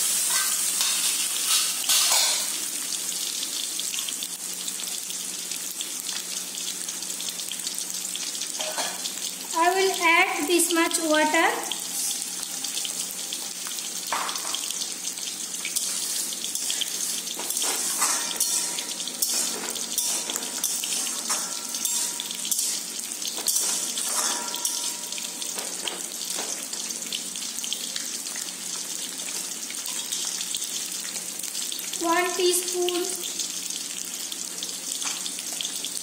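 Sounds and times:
food hissing and bubbling in pan: 0.0s - 36.0s
spatula scraping a pan: 15.8s - 22.8s, 23.4s - 25.0s.

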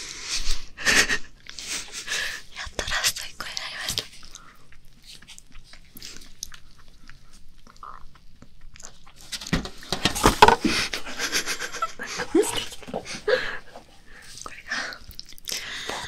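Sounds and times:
mouth and chewing sounds: 2.8s - 9.3s, 12.4s - 16.0s
stifled laughter: 10.6s - 13.8s.

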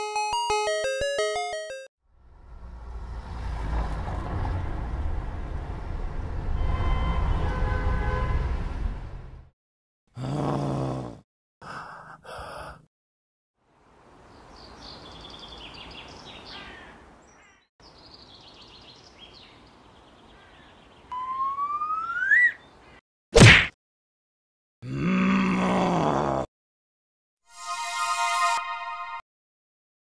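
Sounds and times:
soft outdoor hiss: 13.7s - 21.1s
birds chirping: 14.3s - 23.0s
rising whistle: 21.1s - 22.6s.

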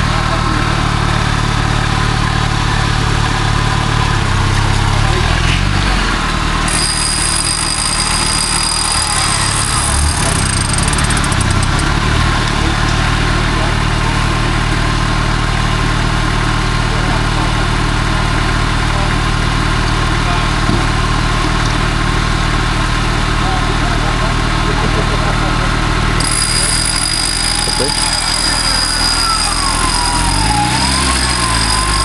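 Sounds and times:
vehicle engine idling: 5.8s - 32.0s
thin high-pitched whine: 6.7s - 11.8s, 26.2s - 32.0s
ticks: 6.7s - 11.9s.

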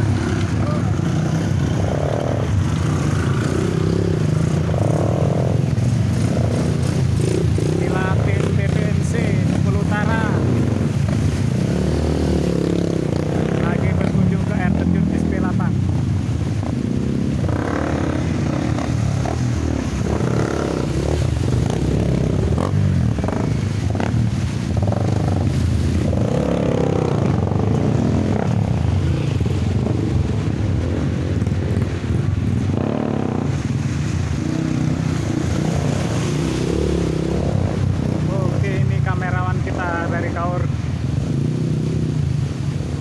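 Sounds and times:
dirt bike engines running: 0.0s - 43.0s.

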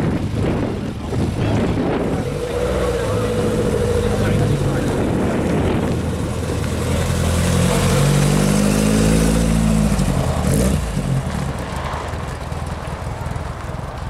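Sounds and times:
car engine passing by: 1.6s - 13.8s.

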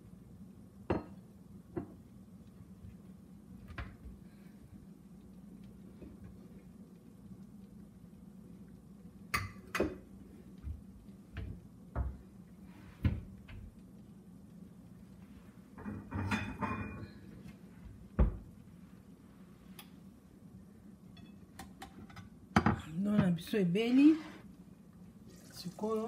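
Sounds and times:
low steady hum: 0.0s - 26.0s
dishes knocking and clinking: 0.9s - 2.0s, 9.3s - 10.1s, 15.8s - 17.2s, 21.2s - 23.4s.

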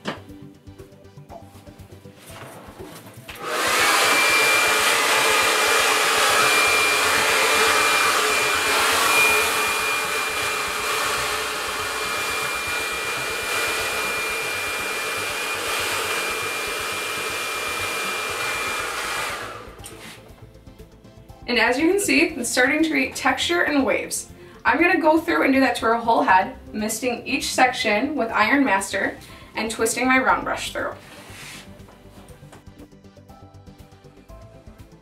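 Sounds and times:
hair dryer blowing: 3.3s - 20.5s, 27.6s - 32.4s
hair dryer switch: 3.4s - 20.0s.

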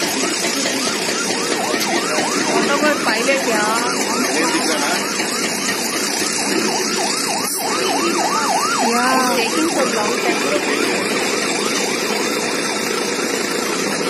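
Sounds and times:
sirens yelping: 0.0s - 14.0s
steady background noise: 0.0s - 14.0s.

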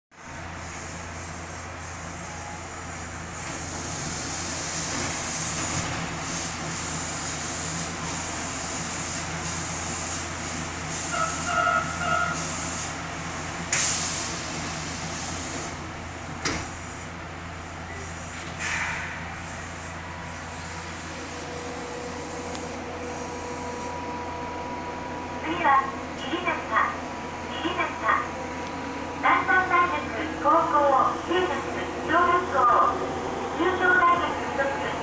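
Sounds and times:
train wheels rumbling on rail: 0.2s - 35.0s
air hiss burst: 13.7s - 14.4s.

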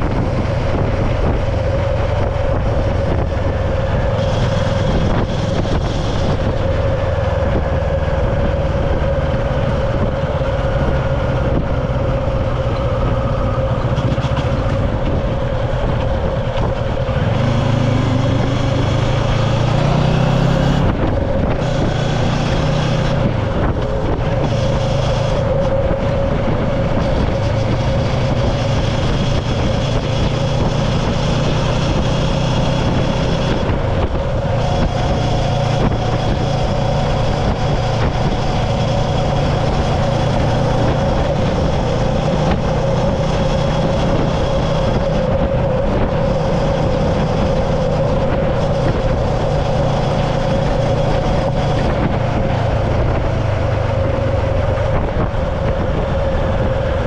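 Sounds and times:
vehicle engine humming with whine: 0.0s - 57.0s.

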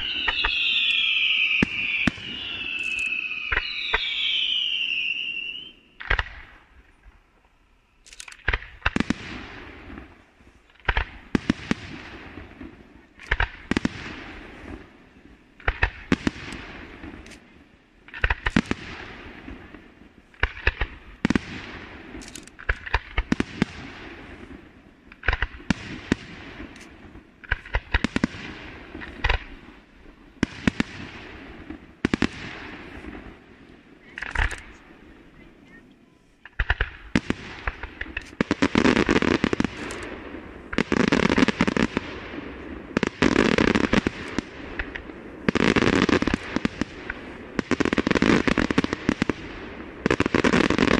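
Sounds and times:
fireworks shells bursting: 0.0s - 6.8s, 34.0s - 34.9s, 36.4s - 42.1s
fireworks crackle and hiss: 0.0s - 50.9s.

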